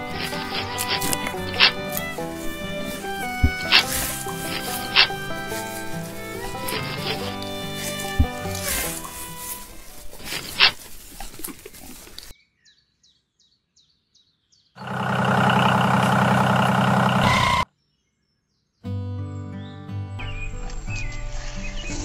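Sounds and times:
small engine running: 0.0s - 9.4s, 14.8s - 17.6s
rustling of seedlings pulled up: 0.0s - 12.3s.

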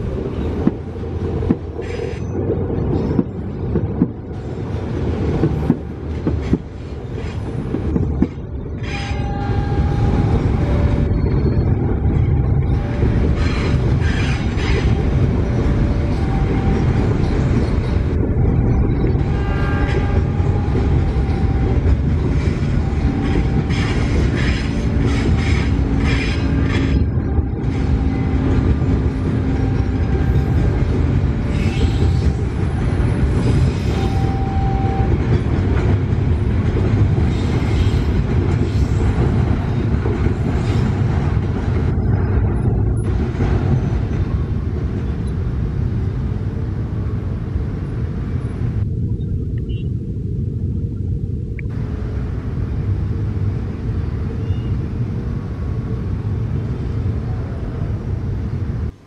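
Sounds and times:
train wheels rumbling on rail: 0.0s - 49.0s, 51.6s - 59.0s
clacks over rail joints: 0.5s - 4.3s, 5.2s - 9.2s.

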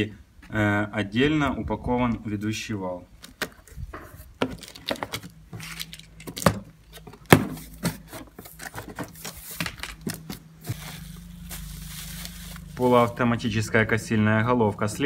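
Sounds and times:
faint steady hum: 0.0s - 15.0s
knocks and rustles inside box: 6.3s - 11.1s
cardboard flaps scraping: 7.2s - 13.2s.

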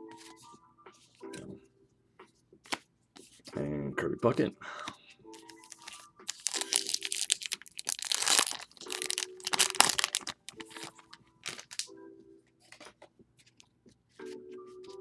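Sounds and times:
foil wrapper crinkling and tearing: 5.4s - 11.9s.

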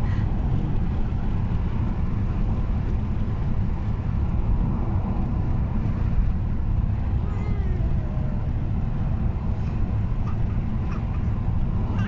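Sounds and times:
car interior road rumble: 0.0s - 12.0s.

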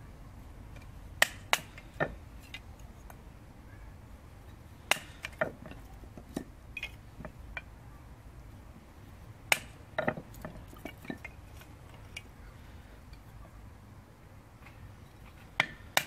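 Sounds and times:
knife splitting sticks: 4.9s - 5.6s
wood knocking on stone: 10.0s - 11.3s.

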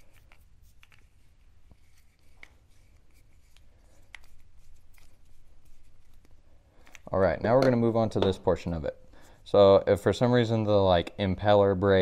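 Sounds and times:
plastic housing clicks and rubbing: 0.0s - 8.4s.

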